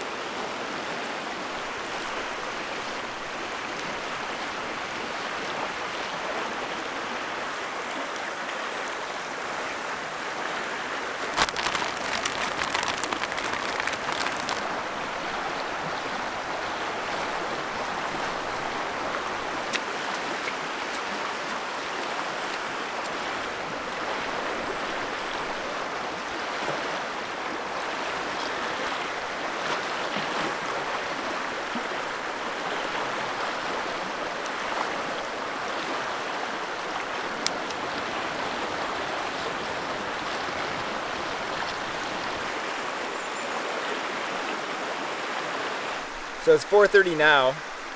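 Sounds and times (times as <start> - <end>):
sharp crackles: 11.2 - 15.2.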